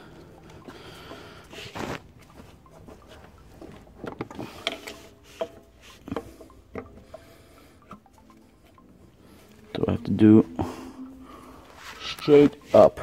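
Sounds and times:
parts knocking and clicking: 2.7s - 7.2s.

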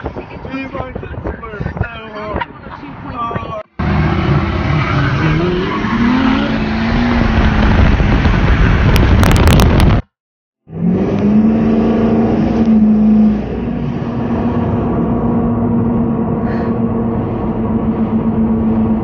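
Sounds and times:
diesel pickup engine revving: 3.8s - 10.0s, 10.7s - 19.0s
diesel pickup under throttle: 3.8s - 19.0s.

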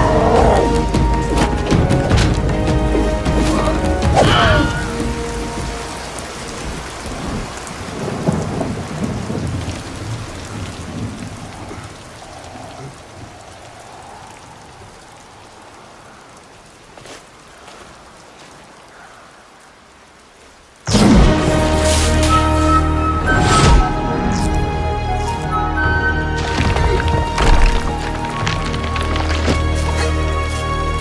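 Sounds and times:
music: 0.0s - 6.6s, 20.9s - 31.0s
rain falling: 0.0s - 31.0s.

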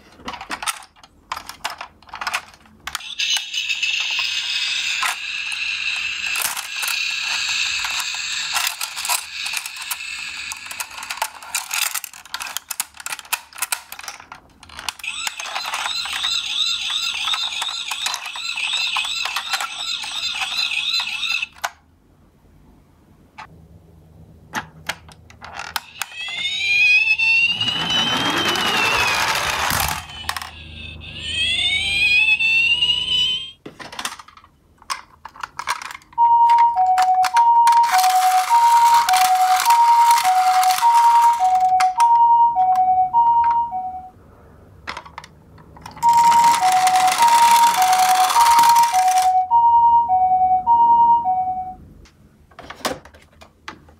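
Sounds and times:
plastic toy clicks and rattles: 0.2s - 21.8s, 28.3s - 30.7s, 33.8s - 36.2s, 37.0s - 42.0s, 44.9s - 49.4s
toy siren warbling: 3.0s - 11.2s, 14.9s - 21.6s, 25.8s - 33.6s, 36.2s - 44.1s, 46.0s - 51.8s
plastic wheels rolling on floor: 27.4s - 30.6s, 45.1s - 49.3s.

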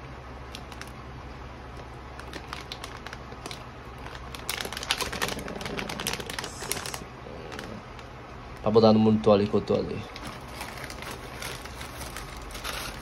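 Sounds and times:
plastic bag crinkling: 0.5s - 1.0s, 1.7s - 8.2s, 10.0s - 13.0s.

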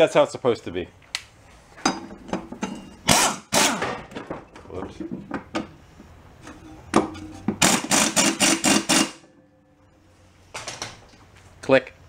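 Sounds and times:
workshop tools knocking and clattering: 1.8s - 3.1s, 3.8s - 9.4s.

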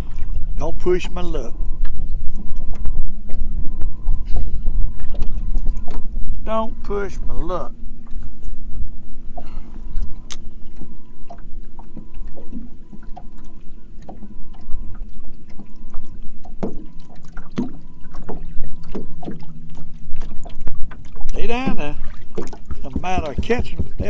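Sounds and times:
faint high tone pulses: 0.0s - 19.3s
boat engine low hum: 0.0s - 24.0s
wind rumbling on microphone: 0.0s - 24.0s
light knocks and ticks: 22.4s - 24.0s.

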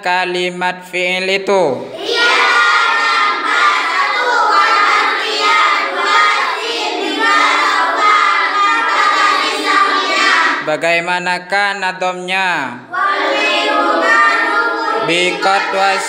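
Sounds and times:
children chanting in unison: 1.8s - 10.7s, 12.8s - 16.0s.

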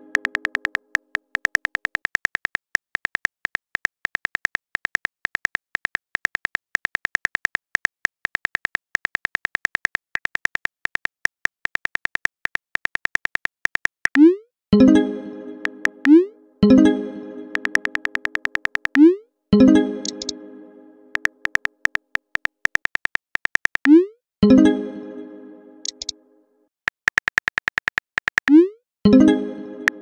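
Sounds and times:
phone keyboard clicks: 0.0s - 14.2s, 17.5s - 19.1s, 21.1s - 24.0s, 25.8s - 26.1s, 26.9s - 28.6s.

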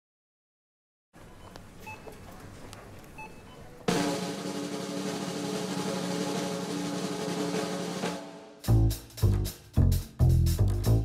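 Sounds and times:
snare drum roll: 3.9s - 9.6s.

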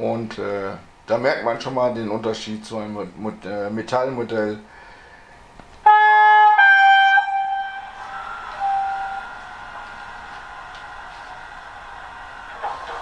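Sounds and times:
two-tone locomotive horn: 5.8s - 11.4s.

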